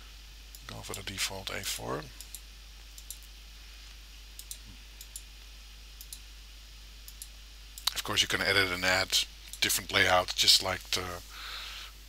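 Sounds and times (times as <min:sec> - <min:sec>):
faint low hum: 0:00.0 - 0:12.0
computer mouse clicking: 0:02.2 - 0:03.3, 0:04.4 - 0:05.3, 0:06.0 - 0:06.2.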